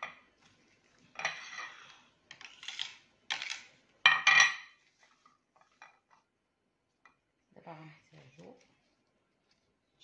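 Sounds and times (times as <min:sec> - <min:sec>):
plates scraping and clattering on stone: 0:01.1 - 0:02.0.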